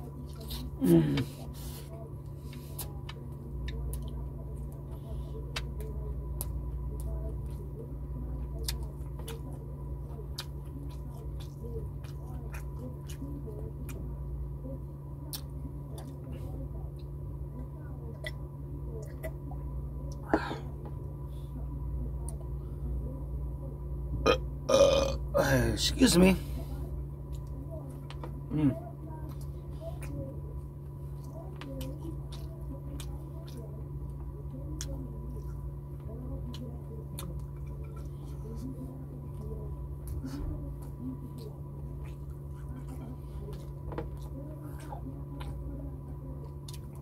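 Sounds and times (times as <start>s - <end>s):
man chewing food: 0.0s - 7.7s, 8.4s - 14.0s, 15.3s - 17.2s, 24.2s - 25.2s, 26.2s - 45.7s, 46.4s - 47.0s
low hum: 0.0s - 47.0s
loud mouth or throat sound: 24.2s - 25.2s.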